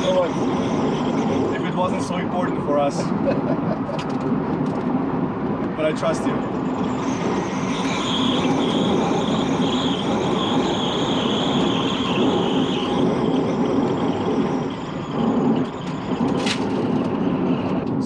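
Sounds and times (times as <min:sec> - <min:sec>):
electric motor whine: 0:00.0 - 0:02.2, 0:06.4 - 0:17.8
road and tyre noise: 0:00.0 - 0:18.0.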